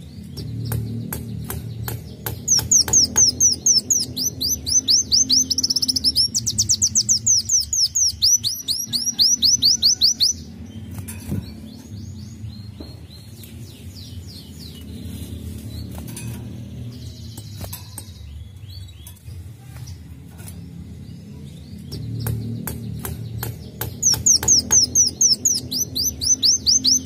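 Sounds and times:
bird singing fast trill: 0.0s - 19.4s, 20.6s - 27.0s
faint bird chirps: 2.5s - 10.4s.

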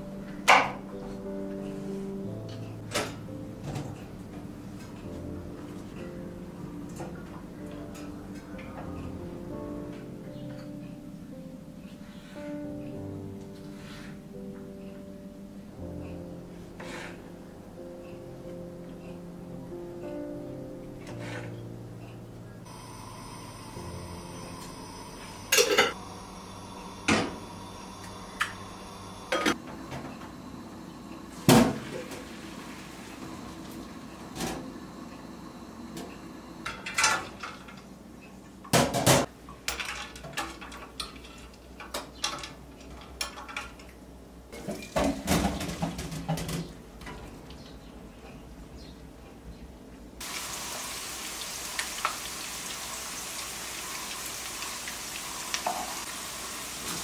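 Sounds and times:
pots and pans clattering: 25.5s - 26.0s, 36.6s - 37.8s, 38.7s - 43.8s, 44.6s - 47.4s
potatoes sizzling in oil: 50.2s - 57.0s.

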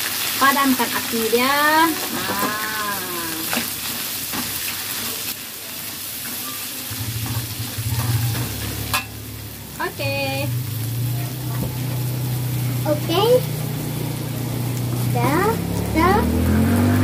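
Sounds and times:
beans sizzling in wok: 0.0s - 17.0s
metal spatula scraping wok: 6.2s - 9.6s.

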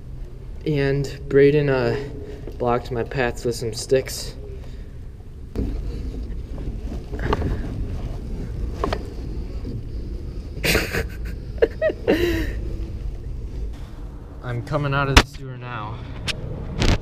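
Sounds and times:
scraping rushes: 0.0s - 15.2s
kayak rumbling through water: 5.6s - 13.8s.

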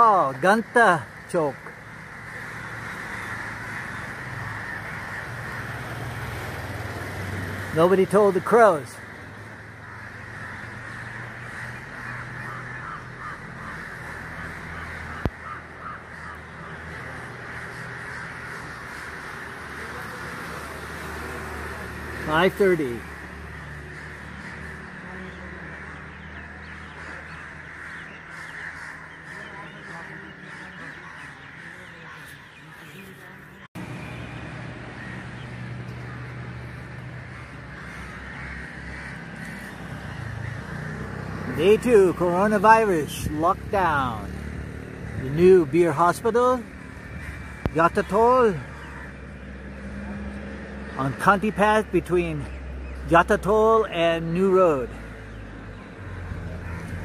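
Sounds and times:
crows cawing: 0.0s - 57.0s.

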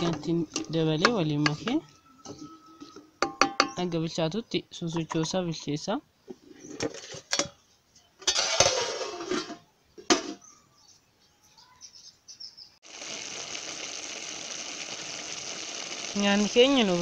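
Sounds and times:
food sizzling in pot: 8.3s - 9.4s, 12.8s - 17.0s.

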